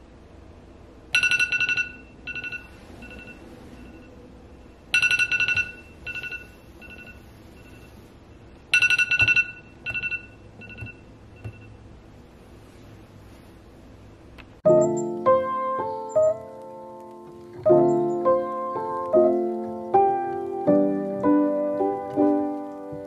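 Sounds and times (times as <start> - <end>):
phone alarm chime: 1.2 - 4.1, 4.9 - 8.1, 8.7 - 11.8, 14.7 - 15.2.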